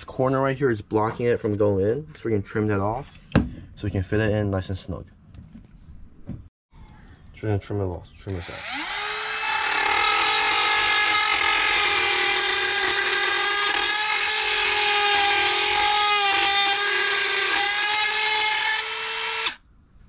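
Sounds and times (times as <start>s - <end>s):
rotary tool high-pitched whine: 8.3s - 19.6s.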